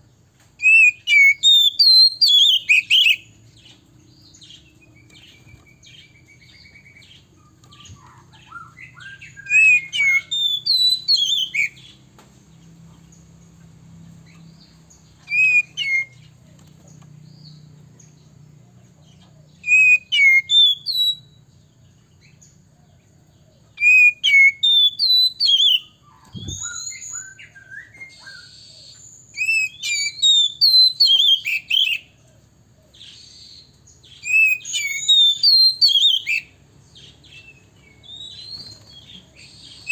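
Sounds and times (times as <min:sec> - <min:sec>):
bird singing whistled phrases: 0:00.6 - 0:03.4, 0:04.4 - 0:12.0, 0:15.2 - 0:16.3, 0:19.6 - 0:21.4, 0:23.8 - 0:32.1, 0:33.0 - 0:39.9.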